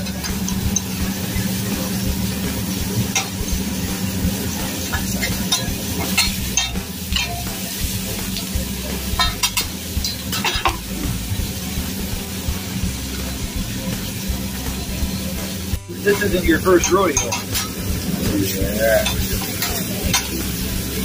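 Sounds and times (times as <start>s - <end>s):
food sizzling on a griddle: 0.0s - 21.0s
metal spatula scraping griddle: 9.1s - 11.2s.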